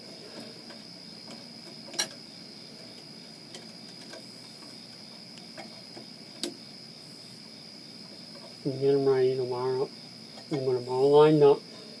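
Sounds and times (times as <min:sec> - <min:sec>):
faint high-pitched whine: 0:00.0 - 0:12.0
metallic clicks of wires: 0:00.6 - 0:02.2.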